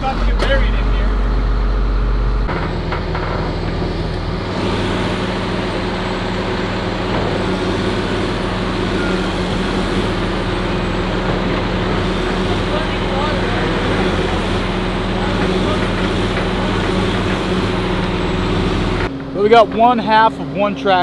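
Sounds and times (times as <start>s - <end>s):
diesel engine running: 0.0s - 21.0s.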